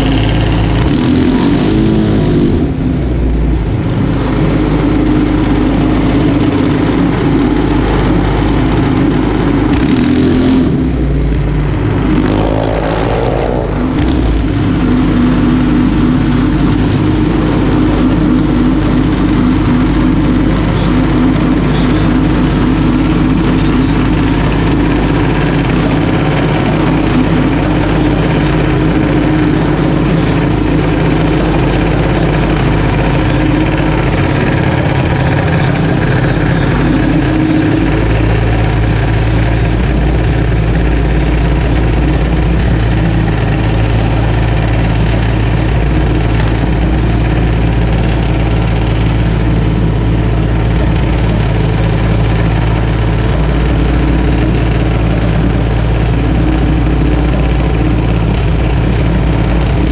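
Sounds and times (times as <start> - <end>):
single-cylinder engine idling: 0.0 - 59.9.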